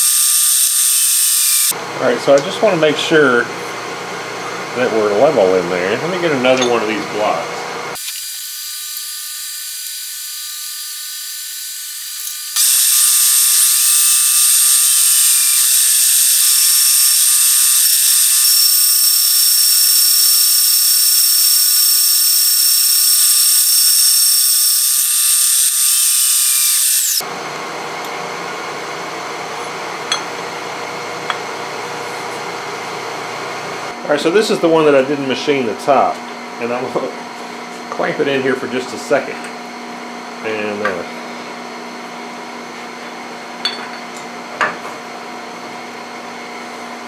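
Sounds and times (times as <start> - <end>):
high-pitched whining cut: 0.0 - 1.7, 8.0 - 27.2
milling machine running: 12.6 - 27.2.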